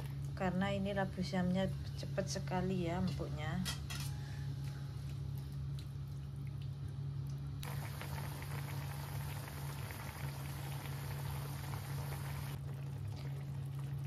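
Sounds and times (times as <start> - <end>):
low hum: 0.0 - 14.0
broth boiling and bubbling: 4.7 - 14.0.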